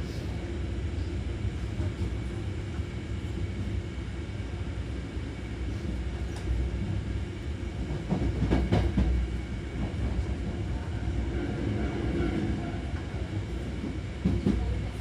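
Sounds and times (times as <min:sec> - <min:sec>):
train motors and wheels rumbling: 0:00.0 - 0:15.0.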